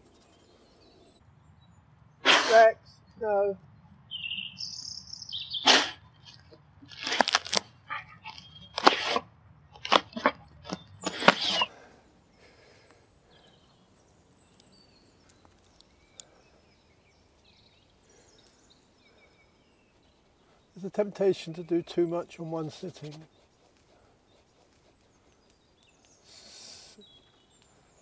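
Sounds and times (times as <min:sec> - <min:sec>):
faint bird chirps: 0:04.1 - 0:06.3, 0:10.6 - 0:28.0
dog paws scraping soil: 0:05.7 - 0:11.8, 0:19.7 - 0:26.4.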